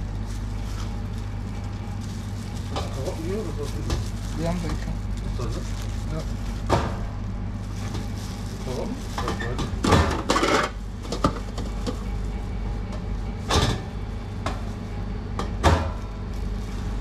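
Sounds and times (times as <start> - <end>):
food clattering and rustling: 0.0 - 12.2
steady low hum: 0.0 - 17.0.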